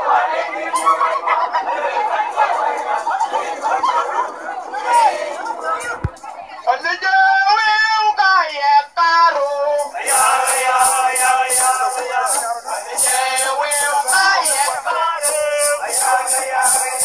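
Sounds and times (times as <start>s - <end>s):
voices singing long notes: 8.8s - 17.0s
high rattling beat: 9.4s - 17.0s.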